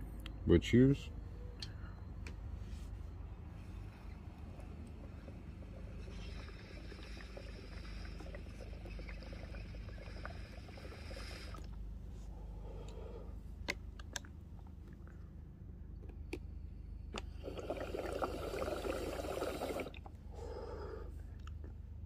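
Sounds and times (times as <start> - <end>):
water bubbling in a bong: 3.8 - 11.8, 17.2 - 20.9.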